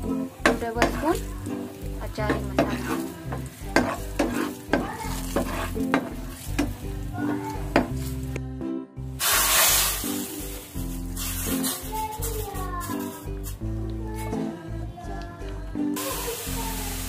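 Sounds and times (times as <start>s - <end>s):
oil sizzling: 0.0s - 8.4s, 9.2s - 14.5s, 16.0s - 17.0s
spoon scraping frying pan: 0.4s - 8.3s.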